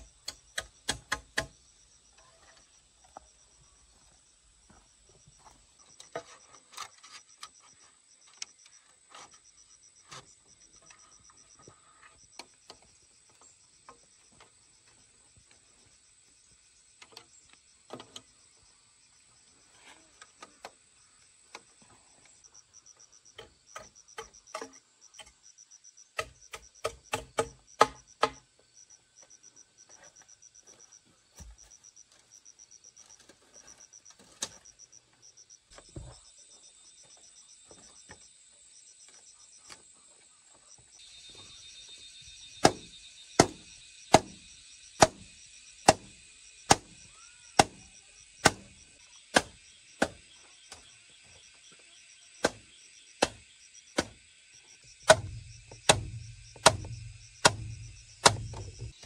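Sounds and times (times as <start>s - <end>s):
crickets chirping: 0.0s - 59.0s
tools knocking on bamboo: 0.2s - 1.5s, 26.2s - 28.4s, 42.6s - 44.4s, 55.0s - 59.0s
chopping strikes: 26.2s - 28.4s, 42.6s - 44.4s, 45.0s - 47.0s, 47.6s - 50.2s, 52.4s - 53.4s, 54.0s - 54.2s, 55.0s - 58.9s.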